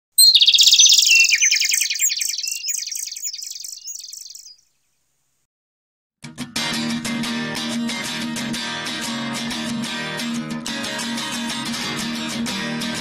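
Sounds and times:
fast high chirping trill: 0.2s - 4.5s
music: 6.2s - 13.0s.

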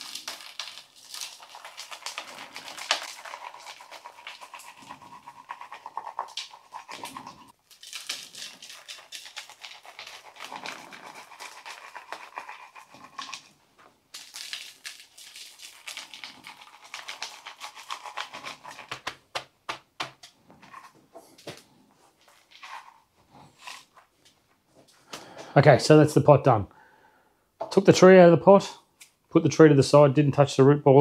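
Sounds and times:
gritty potting mix pouring: 0.0s - 19.1s.

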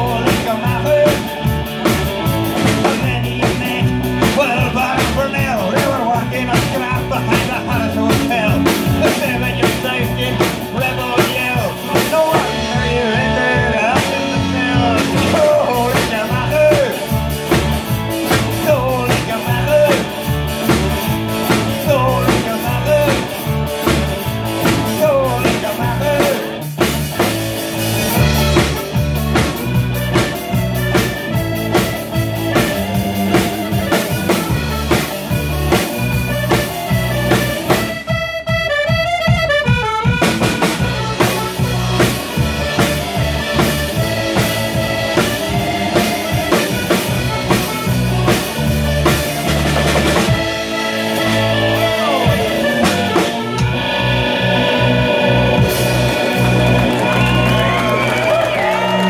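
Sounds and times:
person singing: 0.0s - 1.5s, 2.2s - 26.7s, 51.0s - 59.0s
accordion: 0.0s - 59.0s
drum kit: 0.0s - 59.0s
guitar: 0.0s - 59.0s.

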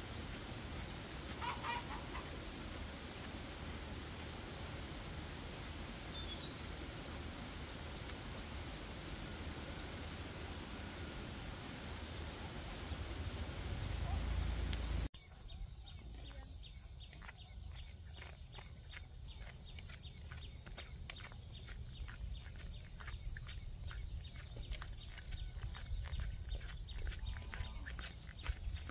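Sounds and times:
insects chirring: 0.0s - 28.9s
low rumble: 10.5s - 15.1s.

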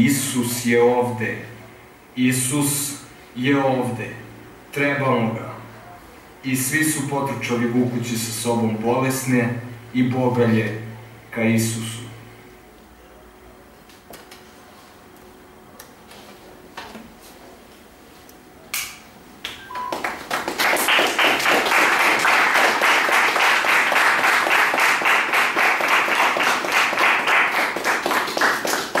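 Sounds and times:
audience clapping: 19.4s - 29.0s.

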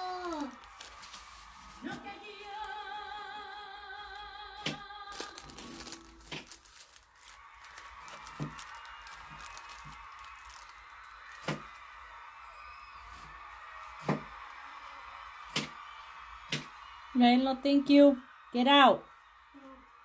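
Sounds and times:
music with singing voice: 1.8s - 5.9s.

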